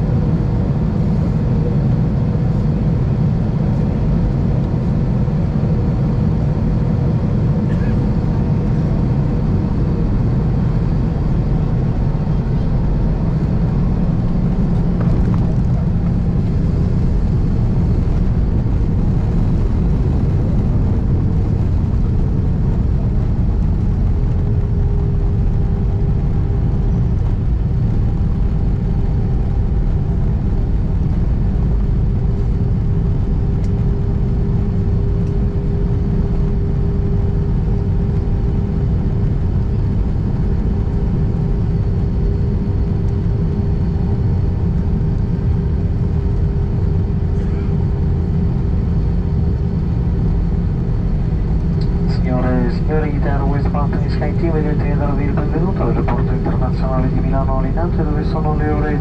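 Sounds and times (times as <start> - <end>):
aircraft engine rumble: 0.0 - 59.0
cabin hum: 51.0 - 59.0.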